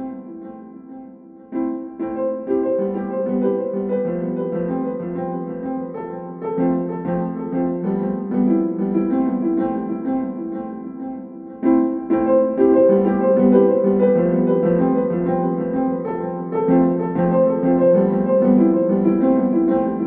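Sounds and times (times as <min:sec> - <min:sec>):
piano music: 0:00.0 - 0:20.0.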